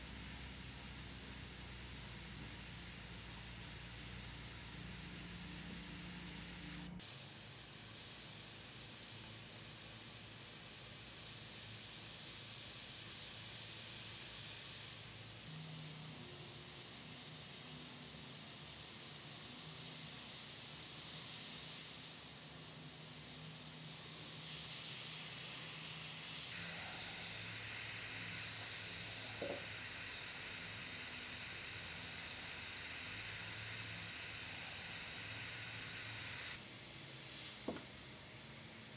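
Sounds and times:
airbrush hissing: 0.0s - 38.9s.

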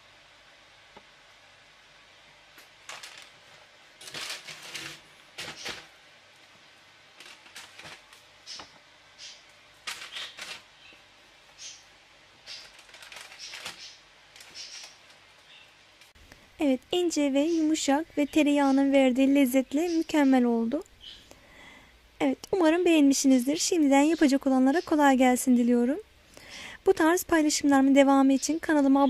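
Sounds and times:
paper and bread crust crackling: 2.6s - 11.8s, 12.4s - 15.6s.

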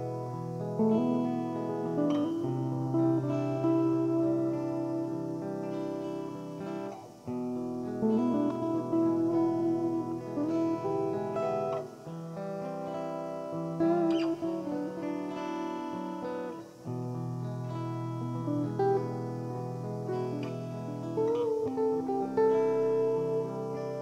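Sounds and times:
guitar theme music: 0.0s - 24.0s.

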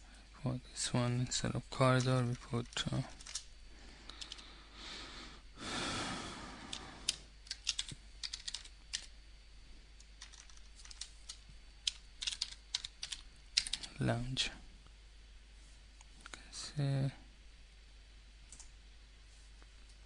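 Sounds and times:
keyboard typing clicks: 6.7s - 9.1s, 10.2s - 13.9s.

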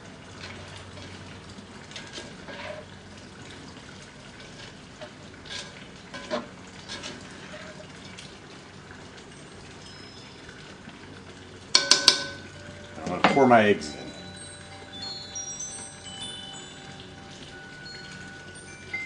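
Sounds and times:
utensil clinking against bowl: 11.7s - 19.0s.

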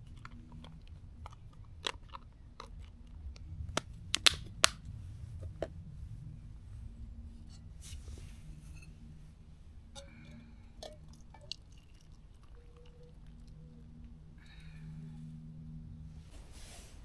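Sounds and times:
low rumble: 0.0s - 12.5s.

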